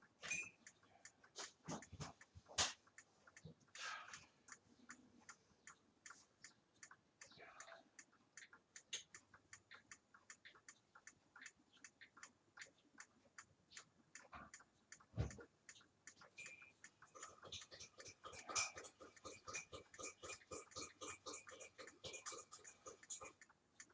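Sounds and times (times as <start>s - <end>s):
wall clock ticking: 0.0s - 23.9s.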